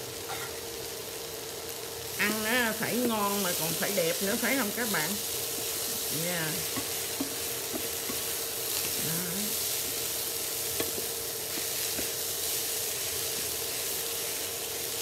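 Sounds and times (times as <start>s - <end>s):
vegetables sizzling in frying pan: 0.0s - 15.0s
wooden utensils tapping pan: 10.7s - 12.2s.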